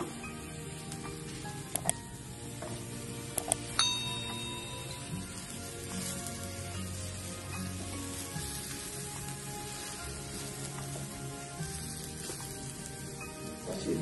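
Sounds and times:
shrimps sizzling on grill pan: 0:00.0 - 0:14.0.

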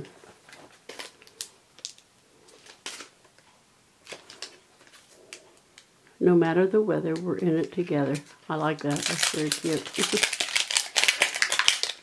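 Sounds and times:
plastic sheet crinkling: 0:00.4 - 0:03.2, 0:04.0 - 0:05.6, 0:07.7 - 0:12.0.

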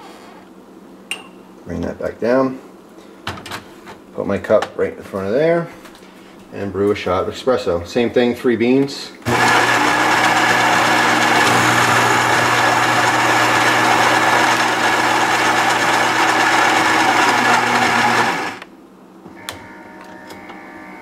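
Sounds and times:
machine hum: 0:09.2 - 0:21.0
coffee grinder grinding beans: 0:09.3 - 0:18.7.

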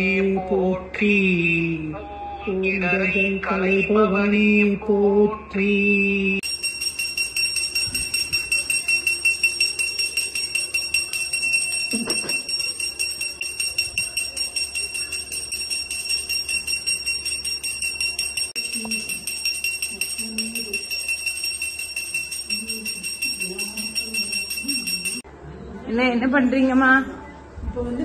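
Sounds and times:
brass hand bell ringing: 0:06.4 - 0:25.2.

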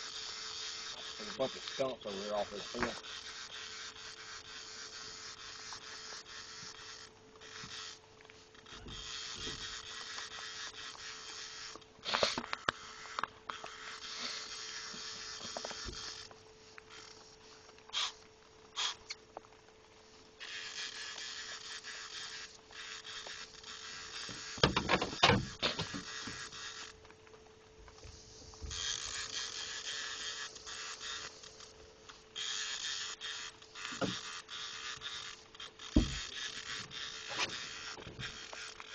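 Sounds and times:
knocks: 0:24.3 - 0:26.4, 0:36.0 - 0:36.3
fishing reel whirring: 0:28.7 - 0:38.9.

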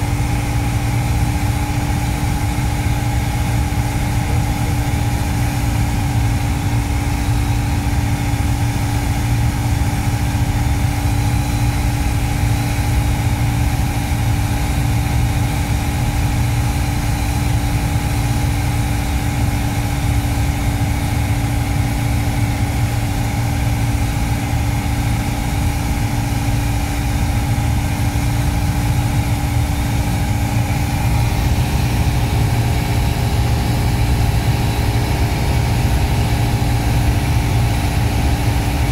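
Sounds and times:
aircraft engine and propeller drone: 0:00.0 - 0:38.9
constant hum: 0:00.0 - 0:38.9.

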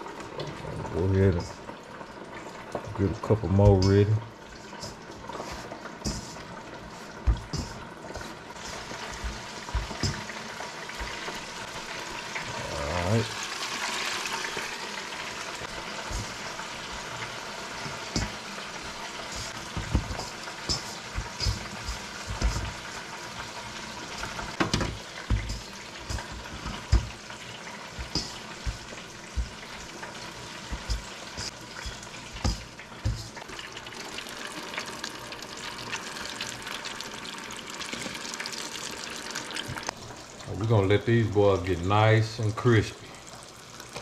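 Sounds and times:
oil sizzling in a deep fryer: 0:00.0 - 0:44.0
soft thumps and knocks: 0:07.2 - 0:08.3.

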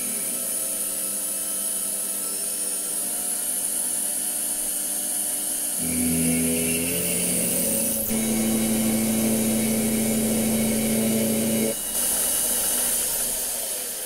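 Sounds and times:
lathe motor hum: 0:05.8 - 0:11.8.

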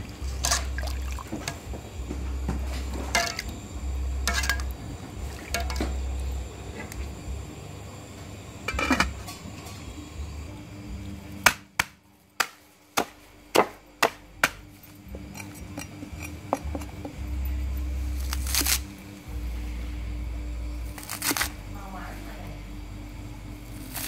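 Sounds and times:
pot lid clattering: 0:05.5 - 0:06.0, 0:08.7 - 0:09.2
cleaver chopping on wooden block: 0:11.4 - 0:14.6.

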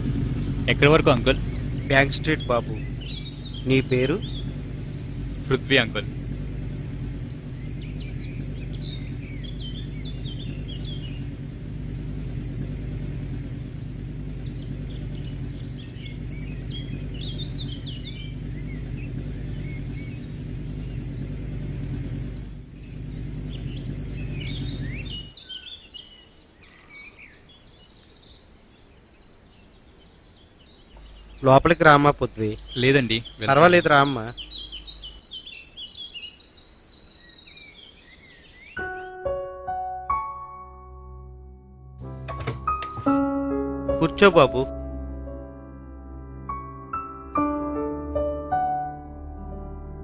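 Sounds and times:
steady low hum: 0:00.0 - 0:25.3, 0:31.0 - 0:35.3
birds chirping: 0:00.0 - 0:43.2, 0:43.9 - 0:44.7.

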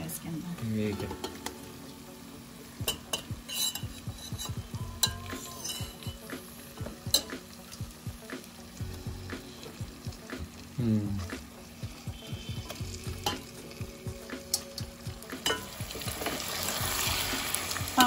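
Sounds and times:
meat sizzling in hot oil: 0:00.0 - 0:18.0
steel clinking against pot: 0:02.8 - 0:06.2, 0:13.2 - 0:13.5, 0:15.4 - 0:15.7.

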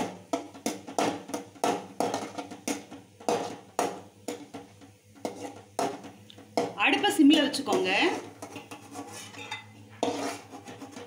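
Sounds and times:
steel spoon scraping a metal pan: 0:05.2 - 0:06.0, 0:06.6 - 0:11.0.

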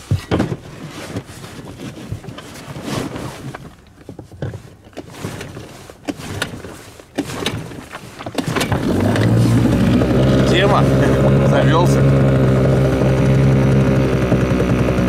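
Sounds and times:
starter cord pulls with rattles: 0:00.0 - 0:15.0
outboard motor starting: 0:05.0 - 0:15.0.

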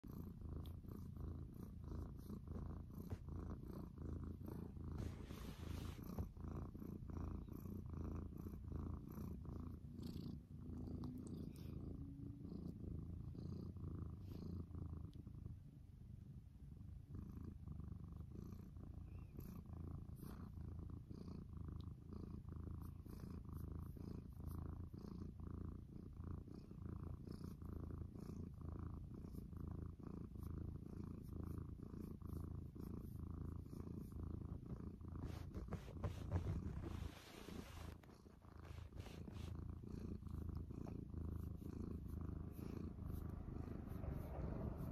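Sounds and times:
cat purring: 0:00.0 - 0:44.9
soft rustle: 0:00.5 - 0:07.1, 0:30.2 - 0:44.9.

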